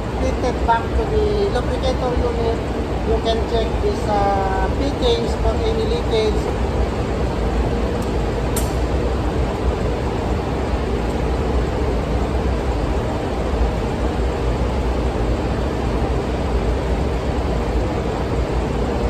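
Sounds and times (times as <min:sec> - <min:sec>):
engine room machinery rumble: 0:00.0 - 0:19.0
short click: 0:08.5 - 0:08.8.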